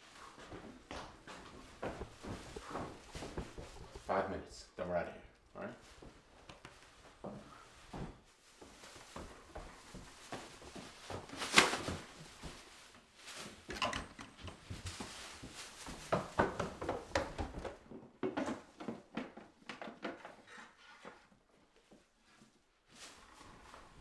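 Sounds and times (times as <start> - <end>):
objects knocking and clattering: 1.3 - 4.1, 13.6 - 15.2, 16.0 - 20.4.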